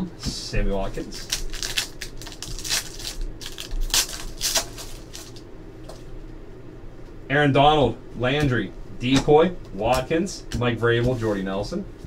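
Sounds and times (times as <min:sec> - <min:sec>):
cards rustling: 0:01.0 - 0:05.4
foil wrapper crinkling: 0:01.0 - 0:05.4.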